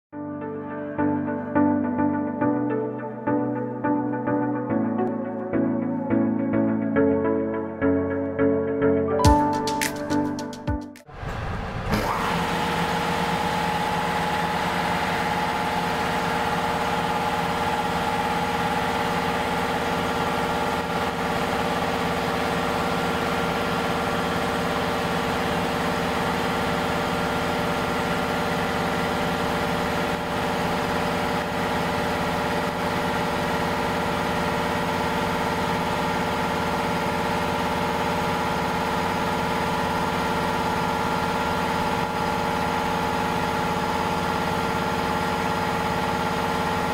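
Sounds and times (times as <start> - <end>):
air compressor running: 11.2 - 46.9.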